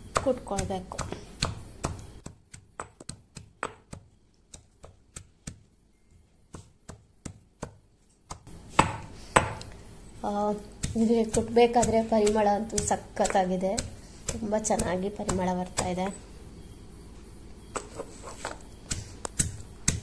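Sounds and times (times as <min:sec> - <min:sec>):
pestle pounding in stone mortar: 0:00.1 - 0:05.7, 0:06.5 - 0:09.6, 0:10.6 - 0:16.1, 0:18.9 - 0:20.0.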